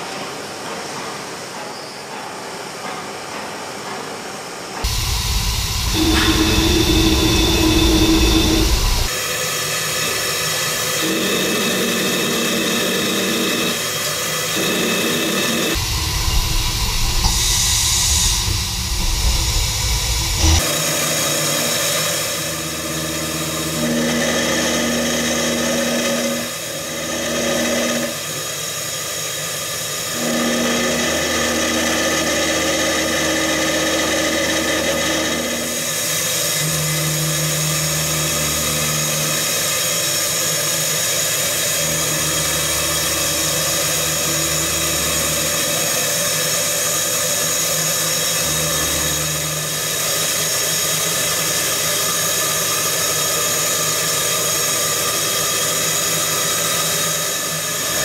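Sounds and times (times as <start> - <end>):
machine hum tones: 4.8 - 9.1, 10.9 - 28.2, 30.1 - 46.4, 48.2 - 50.6
machine milling metal: 4.8 - 58.0.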